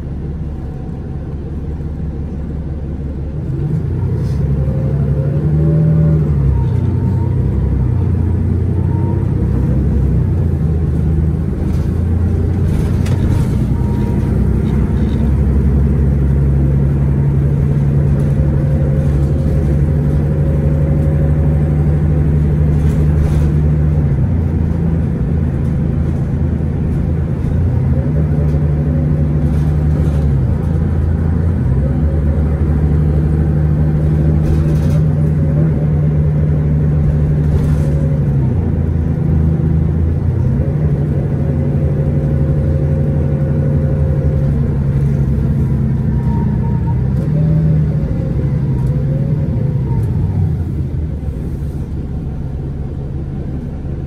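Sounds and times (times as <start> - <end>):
bus diesel engine drone: 0.0 - 54.0.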